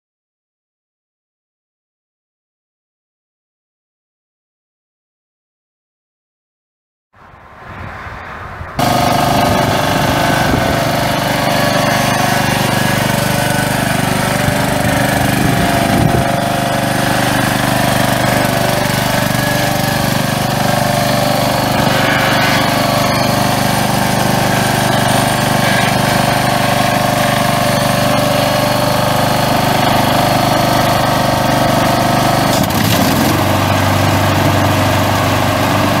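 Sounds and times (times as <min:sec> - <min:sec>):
riding mower engine running: 0:08.8 - 0:36.0.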